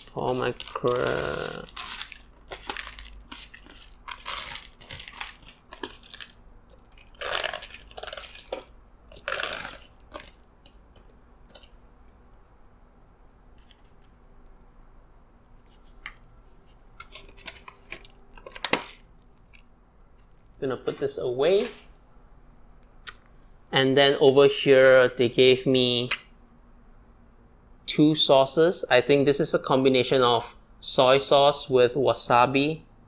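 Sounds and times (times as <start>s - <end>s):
flakes pattering down: 0.0s - 10.4s
plastic box crackling: 0.0s - 11.8s, 17.0s - 20.6s.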